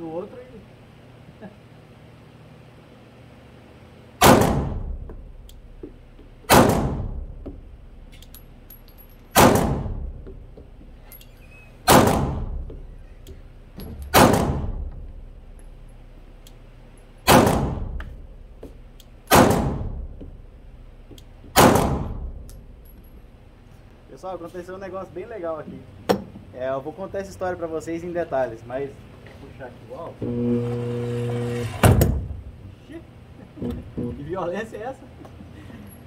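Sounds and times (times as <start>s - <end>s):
pistol shots with echo: 4.2s - 5.0s, 6.5s - 7.2s, 9.3s - 10.1s, 11.9s - 12.6s, 14.1s - 14.9s, 17.2s - 18.0s, 19.3s - 20.0s, 21.6s - 22.3s.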